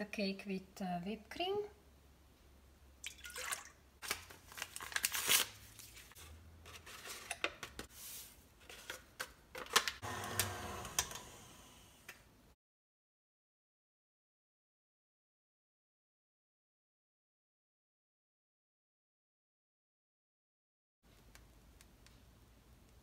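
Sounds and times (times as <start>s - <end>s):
paper packets tearing: 4.0s - 7.4s
stand mixer humming: 10.0s - 11.8s.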